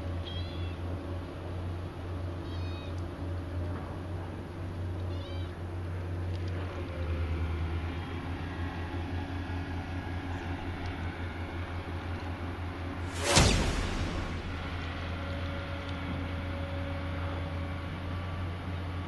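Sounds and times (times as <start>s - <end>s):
cat meowing: 2.4s - 3.0s, 5.1s - 5.6s
steady low rumble: 13.0s - 16.5s.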